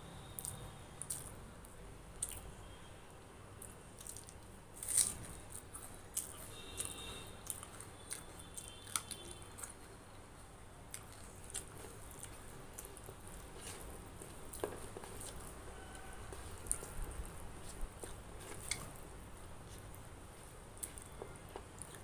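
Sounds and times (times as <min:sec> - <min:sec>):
chewing with mouth clicks: 0:00.4 - 0:01.4, 0:02.2 - 0:02.5, 0:03.6 - 0:10.0, 0:10.9 - 0:19.1, 0:20.8 - 0:22.0
wet squishing of food by hand: 0:10.9 - 0:22.0.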